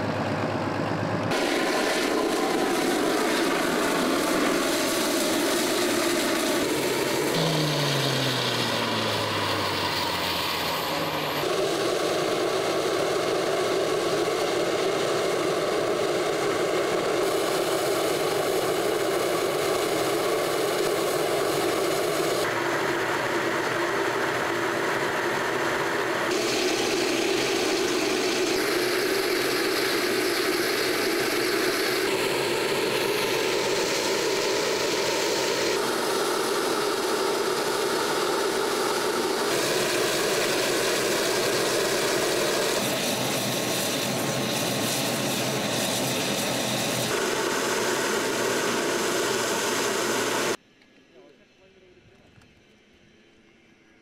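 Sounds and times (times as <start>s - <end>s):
heavy vehicle engine idling: 0.0s - 11.5s.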